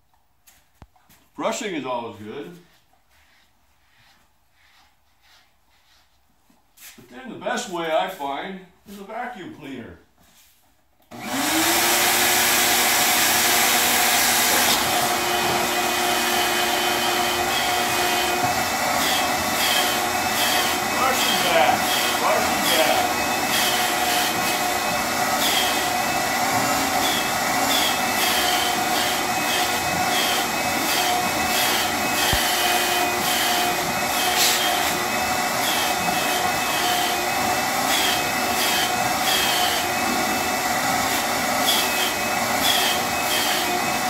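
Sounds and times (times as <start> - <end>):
vacuum cleaner whining: 11.1 - 44.0.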